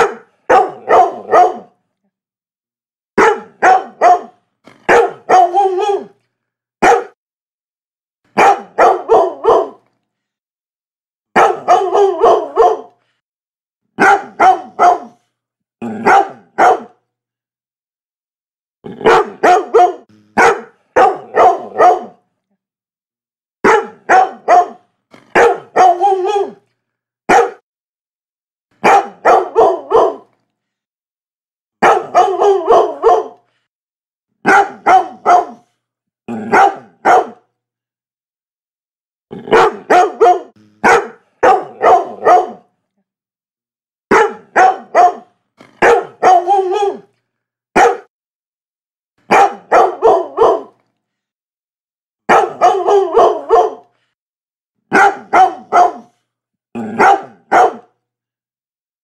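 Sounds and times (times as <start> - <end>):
dog barking: 0.0 - 1.8, 3.2 - 6.2, 6.8 - 7.2, 8.3 - 9.9, 11.3 - 13.0, 14.0 - 15.2, 15.9 - 17.0, 19.0 - 22.2, 23.6 - 26.6, 27.3 - 27.6, 28.8 - 30.3, 31.8 - 33.5, 34.4 - 35.7, 36.4 - 37.5, 39.4 - 42.7, 44.1 - 47.1, 47.7 - 48.1, 49.2 - 50.8, 52.3 - 53.9, 54.9 - 56.2, 56.8 - 58.0.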